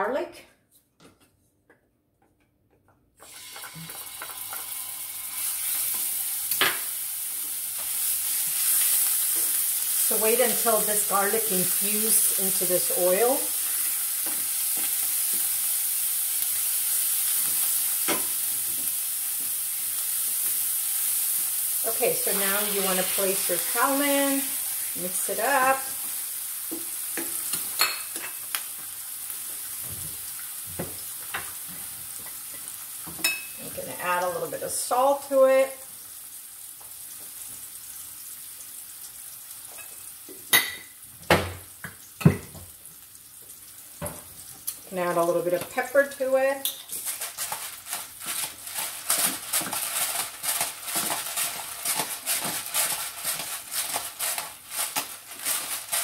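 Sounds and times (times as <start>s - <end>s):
garlic sizzling in oil: 3.2s - 56.0s.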